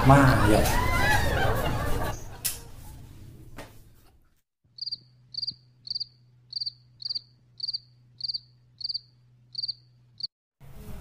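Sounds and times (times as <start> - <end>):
cricket chirping: 4.8 - 9.9.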